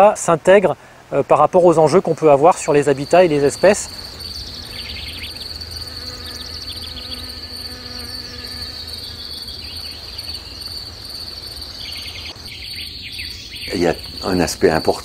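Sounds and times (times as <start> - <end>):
cricket-like trill: 2.7 - 15.0
bee buzzing: 2.9 - 12.4.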